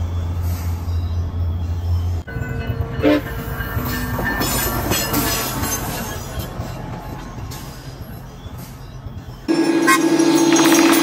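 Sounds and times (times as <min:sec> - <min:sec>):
train passing rumble: 0:00.0 - 0:10.4
train horn: 0:03.0 - 0:03.5.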